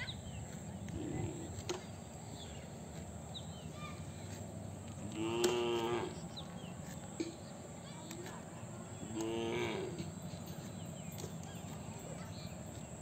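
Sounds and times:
cow mooing: 5.0s - 6.2s, 9.1s - 10.1s.

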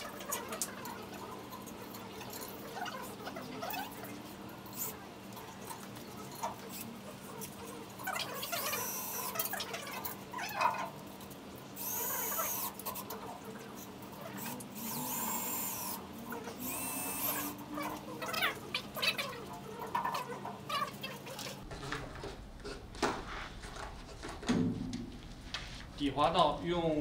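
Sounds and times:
cordless drill whining: 14.8s - 16.0s, 16.6s - 17.6s.

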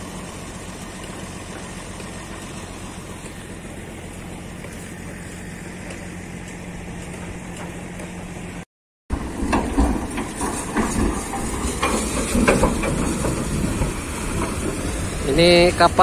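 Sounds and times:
winch engine humming: 0.0s - 16.0s
metal clanks and knocks: 9.1s - 14.8s
boat cradle rumbling down rails: 9.1s - 16.0s.

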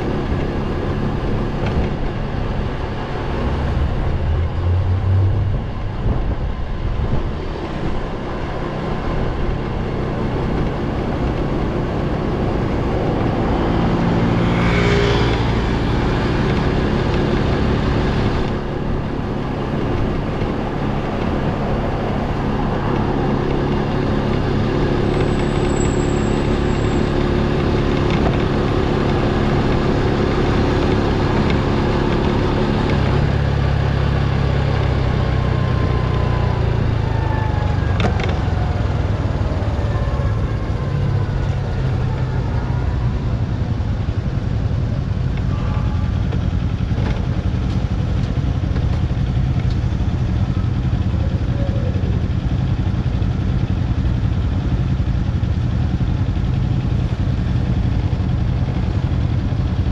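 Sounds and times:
motorcycle engine running: 0.0s - 59.9s
wind noise on microphone: 1.4s - 9.9s.

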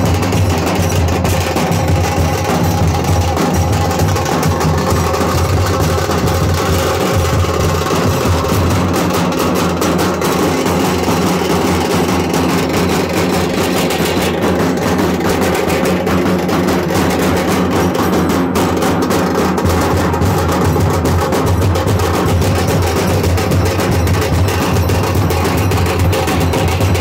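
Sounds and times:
bass drums booming: 0.0s - 17.8s
side drums beaten with sticks: 0.0s - 27.0s.

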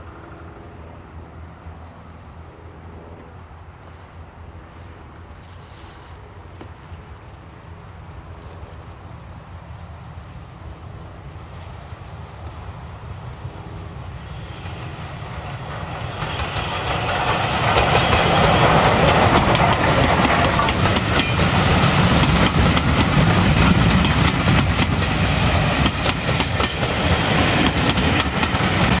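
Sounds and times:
steam locomotive passing: 7.0s - 29.0s
wheels clattering on rails: 14.4s - 29.0s.

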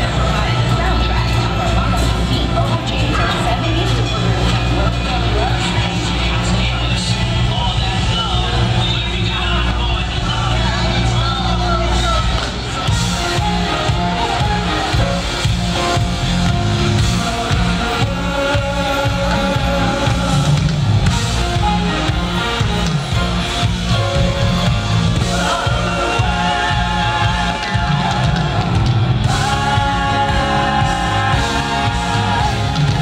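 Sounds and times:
live band playing: 0.0s - 33.0s
people singing: 12.8s - 23.9s, 24.6s - 33.0s.

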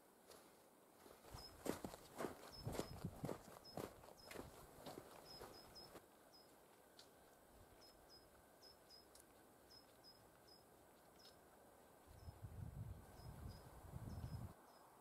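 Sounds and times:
footsteps crunching in snow: 0.3s - 7.8s
faint high chirps: 5.1s - 6.6s, 7.7s - 11.4s.

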